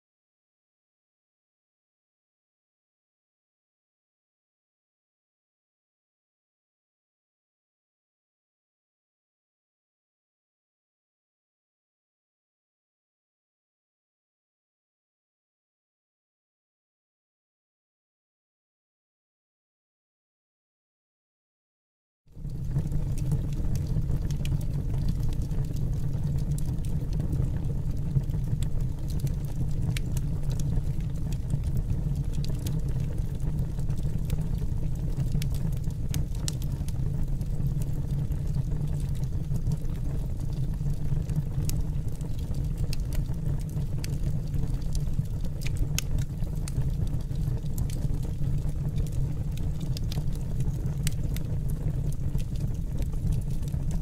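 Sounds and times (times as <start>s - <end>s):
burner flame rumbling: 22.4s - 54.0s
faint crackles: 22.4s - 54.0s.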